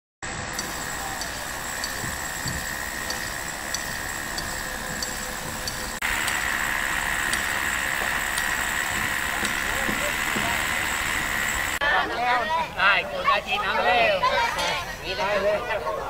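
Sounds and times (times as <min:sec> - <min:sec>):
steady hiss: 0:00.3 - 0:11.8
faint high ticks: 0:00.5 - 0:06.6, 0:07.3 - 0:08.6.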